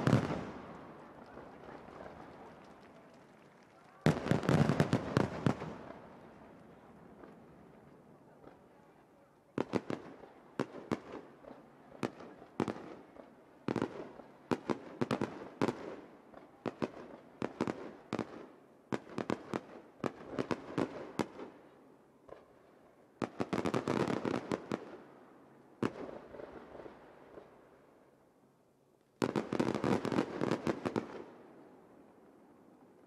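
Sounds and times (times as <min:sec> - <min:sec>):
firework crackling: 0:00.0 - 0:06.2.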